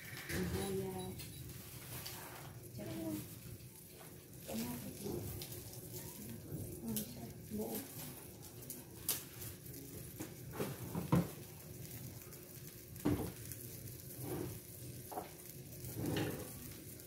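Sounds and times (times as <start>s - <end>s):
broth simmering in a wok: 0.0s - 17.0s
light knocks and pops: 13.0s - 13.4s.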